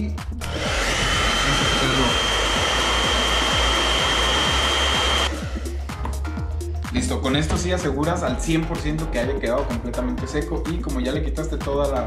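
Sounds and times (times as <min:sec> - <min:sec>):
hair dryer blowing: 0:00.4 - 0:06.2.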